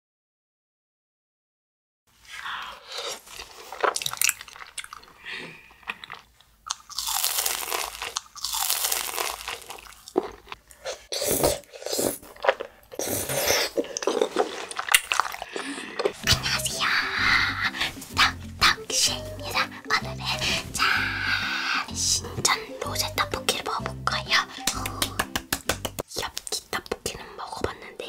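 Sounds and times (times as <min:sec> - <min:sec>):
chewing rice cakes: 0:02.6 - 0:16.2
crunching fried food: 0:03.0 - 0:05.2, 0:05.9 - 0:11.0, 0:11.6 - 0:16.2.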